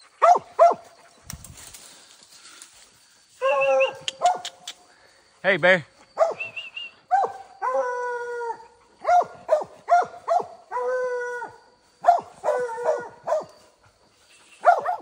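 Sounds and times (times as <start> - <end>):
hounds barking and bawling: 0.0 - 1.3, 3.3 - 4.7, 6.2 - 15.0.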